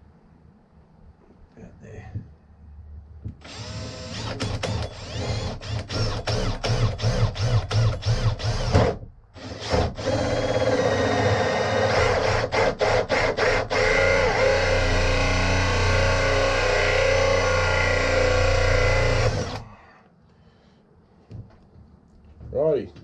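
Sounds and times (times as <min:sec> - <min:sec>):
drill cutting with hole saw: 0:03.4 - 0:19.7.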